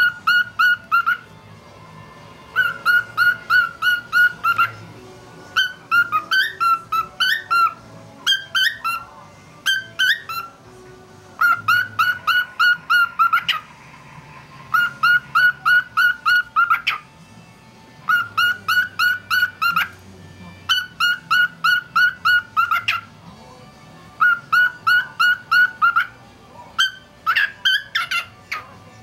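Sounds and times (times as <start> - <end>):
cockatiel whistling: 0.0 - 1.3, 2.5 - 4.8, 5.5 - 10.6, 11.4 - 13.8, 14.7 - 17.1, 18.1 - 20.0, 20.7 - 23.1, 24.2 - 26.2, 26.8 - 28.7.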